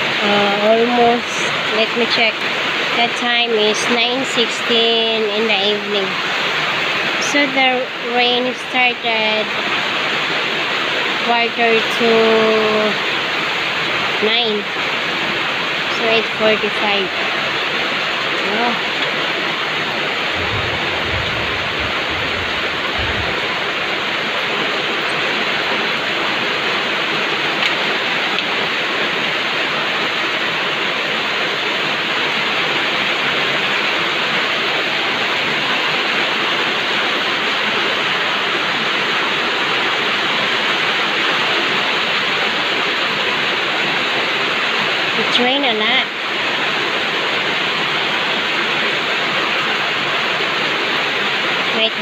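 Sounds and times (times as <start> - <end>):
heavy rain pouring: 0.0 - 52.0
low thumps: 20.3 - 24.2.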